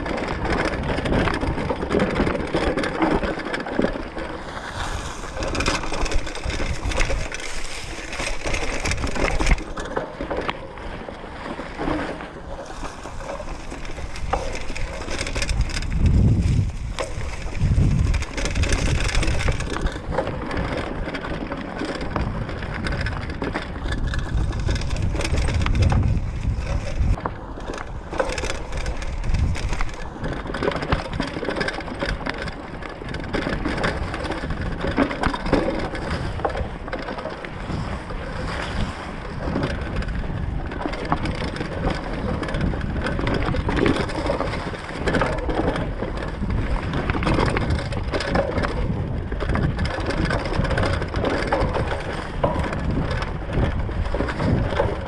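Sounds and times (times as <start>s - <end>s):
wind rumble on microphone: 0.0s - 55.0s
bike tyres crunching over leaves: 3.0s - 34.8s.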